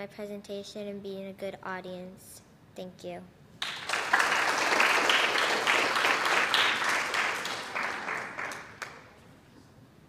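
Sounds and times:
audience applauding: 0:03.6 - 0:09.2.

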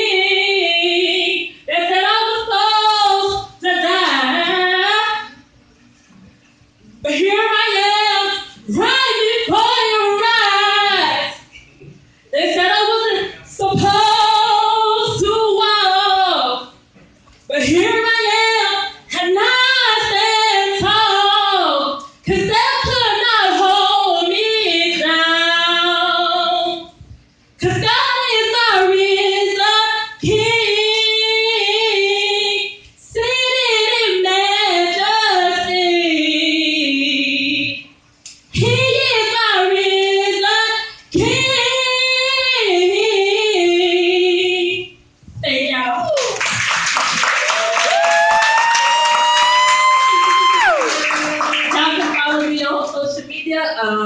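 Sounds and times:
woman singing unaccompanied: 0:00.0 - 0:05.4, 0:07.0 - 0:11.5, 0:12.3 - 0:16.8, 0:17.5 - 0:27.0, 0:27.6 - 0:37.9, 0:38.5 - 0:46.2.

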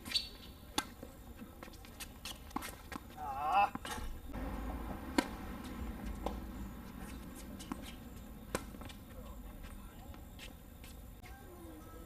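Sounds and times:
rackets hitting tennis ball: 0:00.1 - 0:11.1
tennis ball bouncing: 0:02.2 - 0:11.0.

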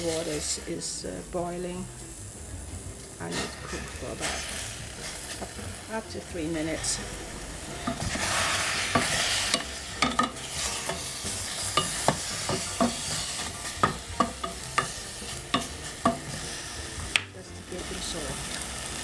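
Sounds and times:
spatula knocking in saucepan: 0:07.8 - 0:16.4.

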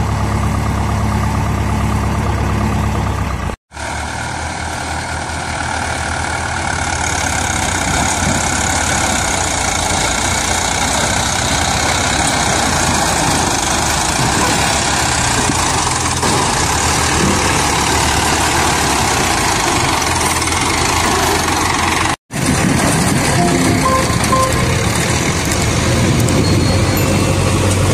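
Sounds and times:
diesel tractor engine running: 0:00.0 - 0:27.9
short beeps: 0:23.4 - 0:25.1.

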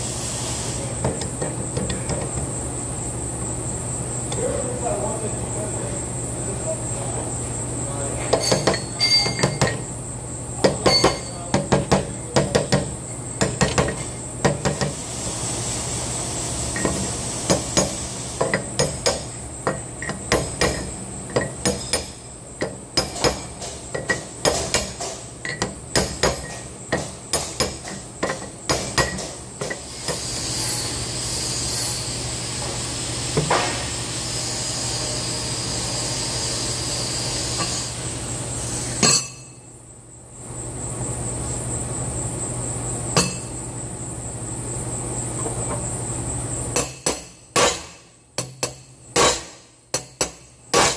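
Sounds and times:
shop hum: 0:00.0 - 0:50.9
hammer tapping on metal: 0:10.6 - 0:14.9, 0:16.8 - 0:29.8, 0:46.8 - 0:50.9.

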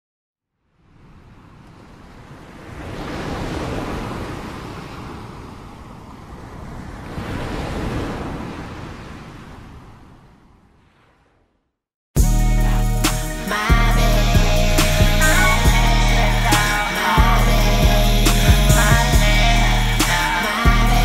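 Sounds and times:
ocean waves breaking: 0:00.7 - 0:11.6.

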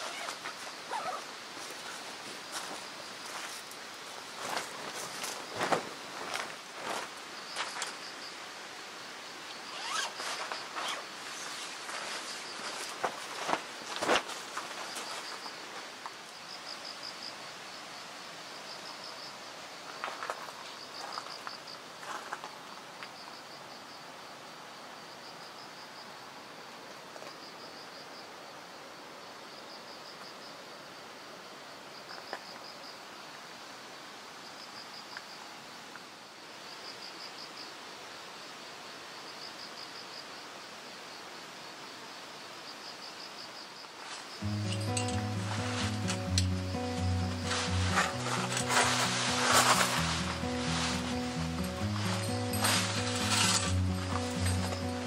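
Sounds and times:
faint rustles: 0:00.0 - 0:08.0, 0:09.7 - 0:16.0, 0:44.0 - 0:55.0
insect chirping in trills: 0:00.0 - 0:55.0
outdoor hiss: 0:00.0 - 0:55.0.

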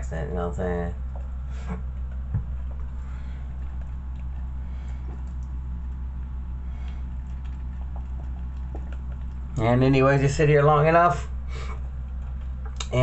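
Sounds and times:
coffee maker humming: 0:00.0 - 0:13.0.

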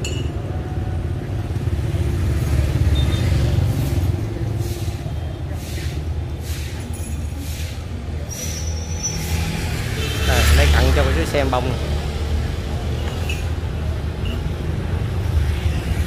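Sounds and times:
street traffic rumble: 0:00.0 - 0:16.0
vehicle passing: 0:09.0 - 0:14.2.

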